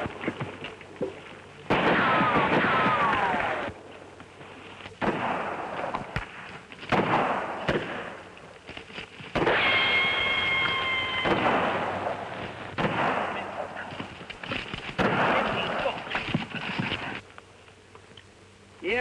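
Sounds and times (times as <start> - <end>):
revolver shots echoing: 6.9 - 8.2, 11.2 - 12.2
high whine: 9.4 - 14.1.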